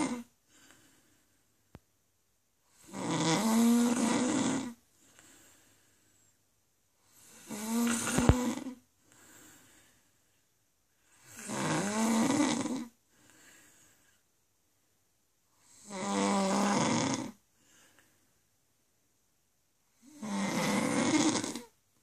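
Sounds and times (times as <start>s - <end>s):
woman snoring: 0.0s - 0.3s, 2.8s - 4.8s, 7.0s - 8.8s, 11.1s - 13.0s, 15.6s - 17.4s, 20.0s - 21.8s
soft breath: 0.4s - 1.7s, 4.9s - 11.2s, 13.0s - 14.3s, 17.5s - 18.4s.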